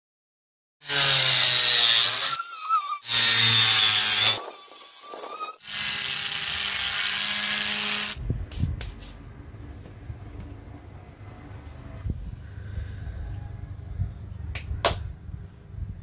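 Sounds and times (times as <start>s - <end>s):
angle grinder sanding wood: 0.8s - 8.2s.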